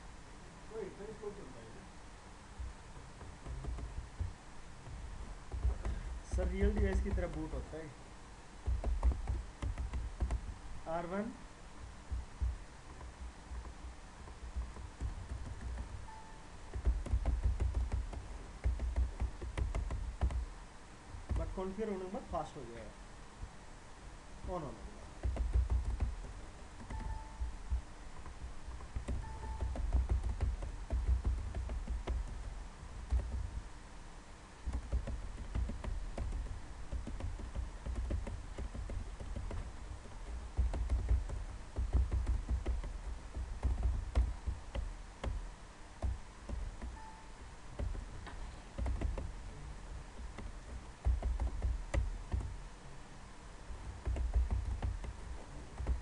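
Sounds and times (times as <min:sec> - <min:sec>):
typing on computer keyboard: 0:03.4 - 0:04.3, 0:05.5 - 0:07.6, 0:08.6 - 0:10.6, 0:12.1 - 0:20.5, 0:21.3 - 0:21.8, 0:25.2 - 0:33.6, 0:34.6 - 0:45.4, 0:46.0 - 0:47.2, 0:47.8 - 0:48.1, 0:48.8 - 0:49.4, 0:50.1 - 0:52.6, 0:54.0 - 0:56.0.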